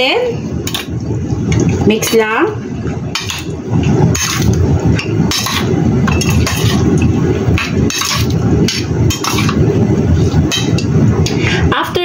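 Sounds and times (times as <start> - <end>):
steady low hum: 0.0 - 12.0
metal spoon scraping steel bowl: 5.3 - 6.9, 7.9 - 9.6.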